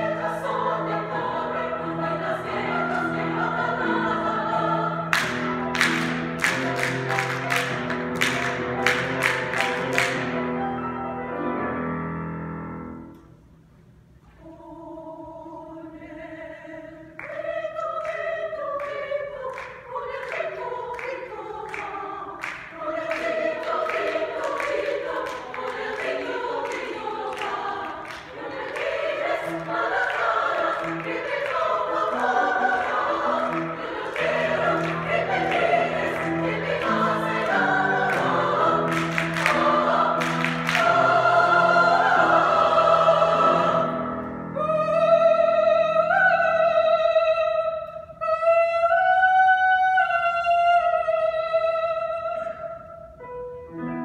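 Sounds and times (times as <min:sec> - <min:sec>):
choir singing: 0:00.0 - 0:10.4, 0:14.4 - 0:52.8
piano accompaniment: 0:00.0 - 0:13.3, 0:20.3 - 0:45.8, 0:53.2 - 0:54.0
people clapping in rhythm: 0:02.8 - 0:10.4, 0:17.2 - 0:43.3.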